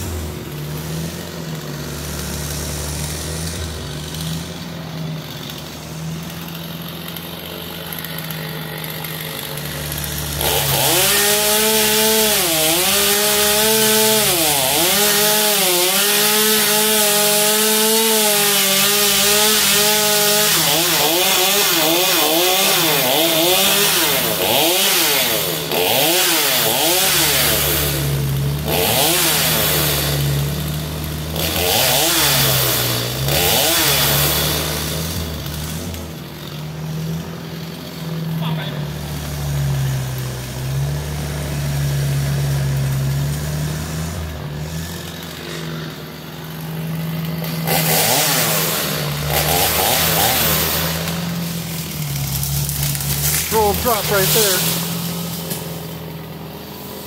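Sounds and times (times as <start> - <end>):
chainsaw cutting wood: 0.0 - 57.0.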